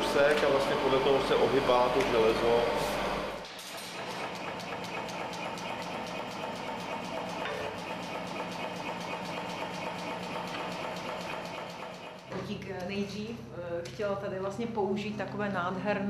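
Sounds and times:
machine humming with fast ticking: 0:00.0 - 0:12.4.

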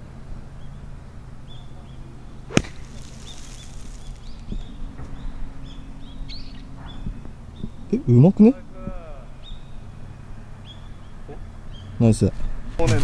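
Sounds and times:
small birds chirping: 0:00.5 - 0:12.2
golf club striking ball: 0:02.4 - 0:05.2.

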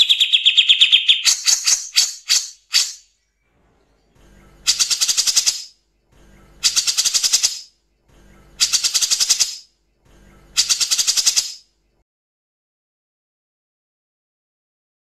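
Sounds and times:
bird harsh rattling call: 0:00.0 - 0:03.1, 0:04.7 - 0:05.7, 0:06.6 - 0:07.7, 0:08.6 - 0:09.7, 0:10.6 - 0:11.6.

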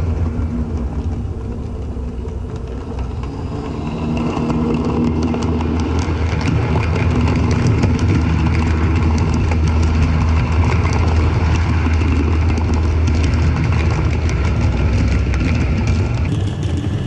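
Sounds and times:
model train rumbling on track: 0:00.0 - 0:17.0
wheels clicking over rail joints: 0:00.0 - 0:17.0.

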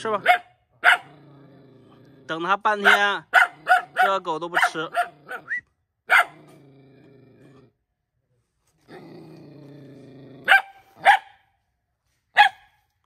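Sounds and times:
dog barking sharply: 0:00.2 - 0:01.1, 0:02.8 - 0:06.4, 0:10.5 - 0:11.4, 0:12.4 - 0:12.8
dog growling low: 0:01.0 - 0:02.6, 0:06.3 - 0:08.0, 0:08.6 - 0:11.0.

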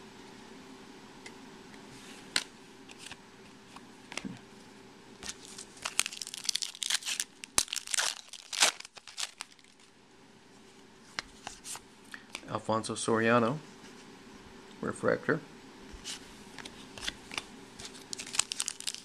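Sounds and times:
foil wrapper crinkling and tearing: 0:05.2 - 0:09.9, 0:17.0 - 0:19.0.

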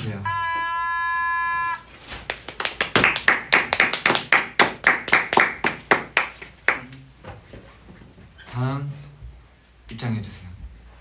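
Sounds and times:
hands clapping: 0:02.2 - 0:07.0.

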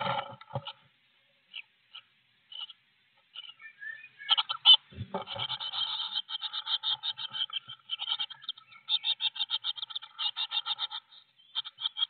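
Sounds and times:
chicks begging calls: 0:01.4 - 0:12.0
bird thump and rustle at nest: 0:04.9 - 0:05.6.

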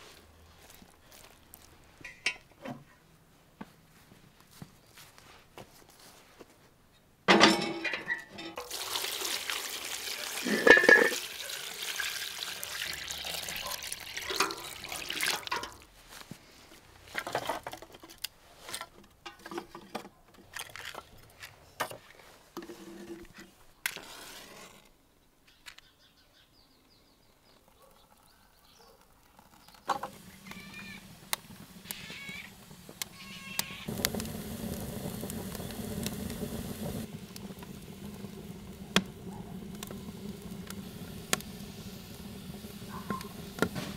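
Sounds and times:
water running and splashing: 0:08.6 - 0:16.0, 0:29.3 - 0:43.9
knocks and clatter of handling: 0:17.1 - 0:23.5.

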